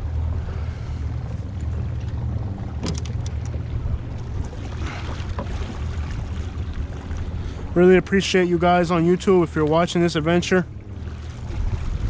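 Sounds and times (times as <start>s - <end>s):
trolling motor rumble: 0.0s - 12.0s
wind on microphone: 11.2s - 12.0s.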